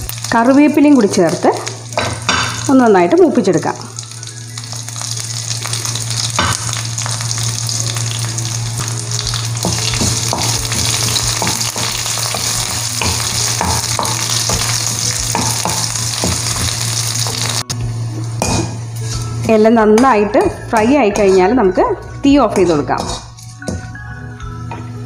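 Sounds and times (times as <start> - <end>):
onions sizzling in hot oil: 0.0 - 19.2
spatula scraping pan: 20.5 - 21.7.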